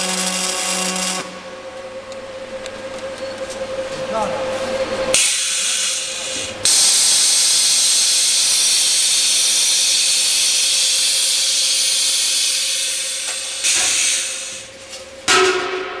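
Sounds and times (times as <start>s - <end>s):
compressed air hissing: 5.2s - 14.8s.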